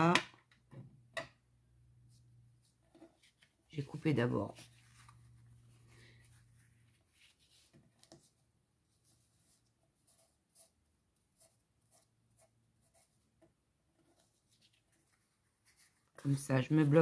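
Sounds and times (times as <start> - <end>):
fabric being folded and rubbed: 2.0 - 12.2, 14.2 - 17.0.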